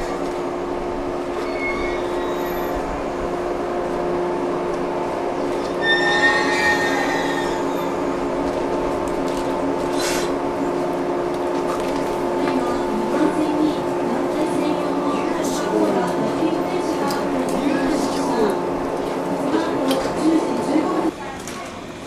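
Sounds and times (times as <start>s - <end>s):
electric train humming: 0.0s - 22.0s
wheels squealing on rail: 1.3s - 3.3s, 5.5s - 8.3s.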